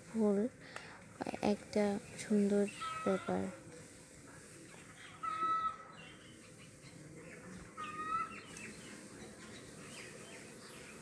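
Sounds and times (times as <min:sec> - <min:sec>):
low background hiss: 0:00.0 - 0:11.0
faint bird chirps: 0:01.9 - 0:03.5, 0:04.6 - 0:11.0.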